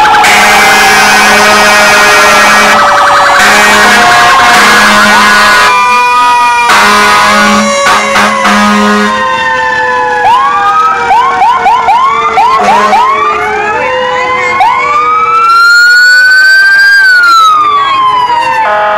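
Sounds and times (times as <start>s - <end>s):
fire truck sirens: 0.0s - 18.9s
horn blast: 0.2s - 2.8s, 3.4s - 5.7s, 6.7s - 9.2s, 12.6s - 13.1s.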